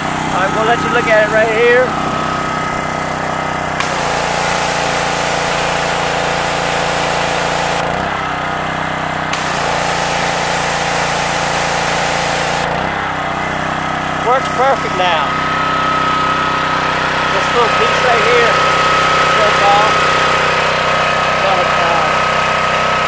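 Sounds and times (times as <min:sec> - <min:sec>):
pressure washer engine running: 0:00.0 - 0:23.0
high-pressure water spray hissing: 0:03.8 - 0:08.2, 0:09.3 - 0:13.0, 0:16.7 - 0:23.0.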